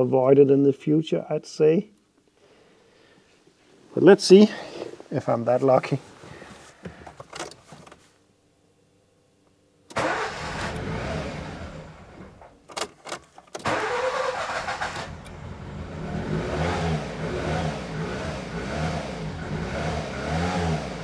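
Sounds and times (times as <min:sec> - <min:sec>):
engine cranking on starter: 0:09.9 - 0:12.9, 0:13.6 - 0:16.5.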